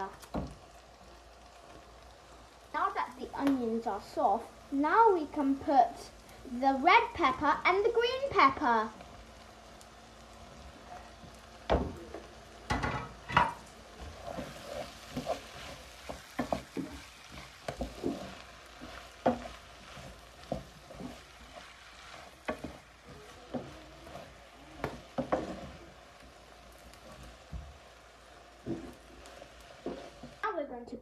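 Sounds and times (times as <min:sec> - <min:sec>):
faint sizzle: 0:00.0 - 0:31.0
wooden spoon scraping pan: 0:12.9 - 0:27.8, 0:28.6 - 0:30.4.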